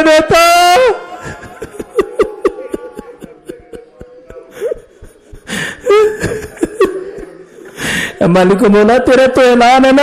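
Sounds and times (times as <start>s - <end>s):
person sobbing: 1.1s - 8.2s
whimper: 1.2s - 7.3s.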